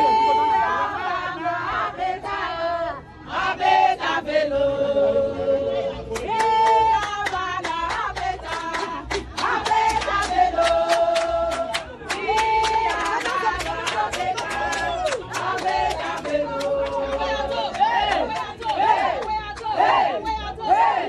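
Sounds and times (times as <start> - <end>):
group of people singing: 0.0 - 21.0
rhythmic hand-clapping: 6.1 - 20.8.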